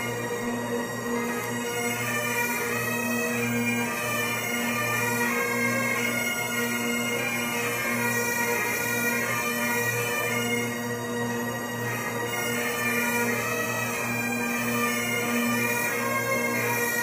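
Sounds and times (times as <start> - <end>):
bagpipes band playing: 0.0 - 17.0.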